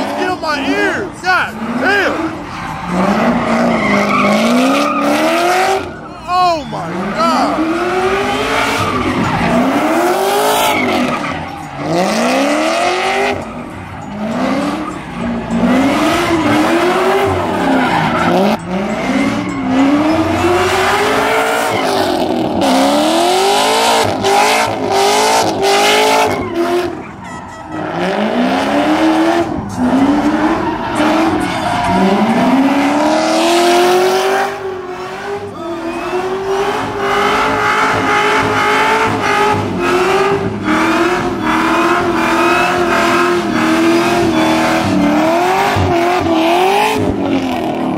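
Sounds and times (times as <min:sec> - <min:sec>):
car engine revving hard: 0:00.0 - 0:06.0, 0:06.8 - 0:27.1, 0:27.8 - 0:47.9
tyres squealing: 0:00.0 - 0:34.0.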